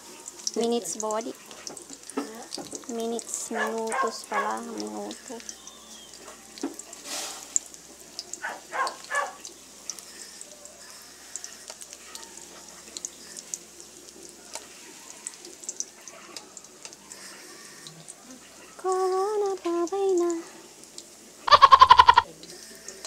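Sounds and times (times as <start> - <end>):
food sizzling in hot oil: 0.0 - 23.0
oil popping and crackling: 0.0 - 23.0
person speaking: 2.2 - 5.5.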